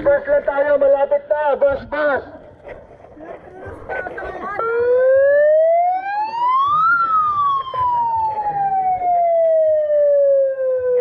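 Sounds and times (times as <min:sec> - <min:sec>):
siren wailing: 0:04.6 - 0:11.0.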